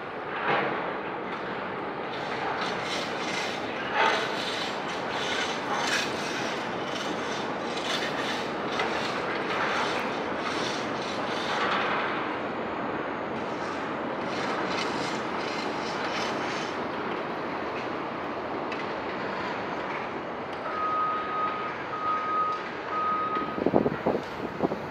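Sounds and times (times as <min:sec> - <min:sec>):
elevated train rumbling on rails: 0:00.0 - 0:22.0, 0:22.6 - 0:24.9
train wheel clatter: 0:02.0 - 0:12.2.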